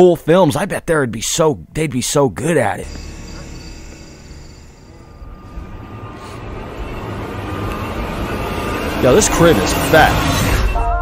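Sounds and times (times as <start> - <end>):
ominous ambient music drone: 2.8 - 11.0.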